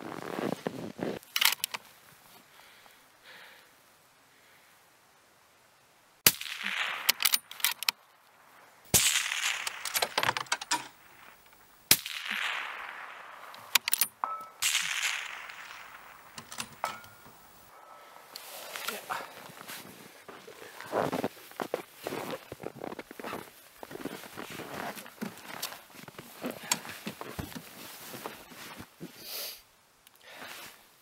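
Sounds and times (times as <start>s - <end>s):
clothing rustle and movement in snow: 0.0s - 3.0s, 17.1s - 29.6s, 30.3s - 31.0s
rifle bolt clicks: 1.4s - 1.8s, 7.1s - 8.0s, 13.6s - 14.1s, 16.3s - 17.4s
suppressed rifle shots: 6.3s - 7.8s, 8.9s - 17.8s.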